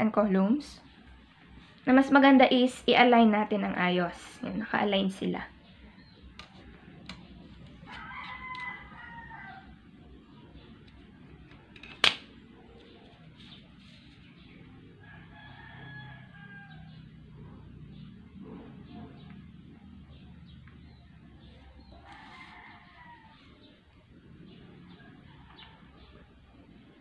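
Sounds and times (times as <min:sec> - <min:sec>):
rooster crowing: 0:07.8 - 0:09.9, 0:15.0 - 0:17.2, 0:21.8 - 0:23.8.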